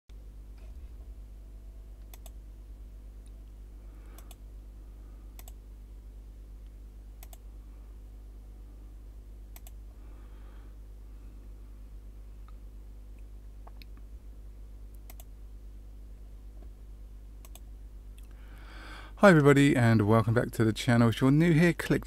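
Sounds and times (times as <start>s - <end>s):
low electrical hum: 0.1s - 22.0s
computer mouse clicking: 2.0s - 2.4s, 4.1s - 4.4s, 5.4s - 5.6s, 7.2s - 7.4s, 9.5s - 9.8s, 15.0s - 15.3s, 17.4s - 17.6s.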